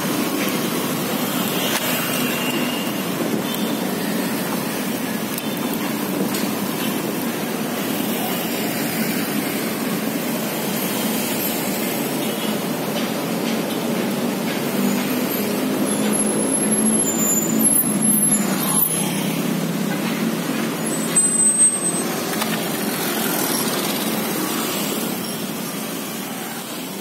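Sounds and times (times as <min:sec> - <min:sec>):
road traffic passing: 0:00.0 - 0:27.0
short high-pitched squeak: 0:20.8 - 0:22.2.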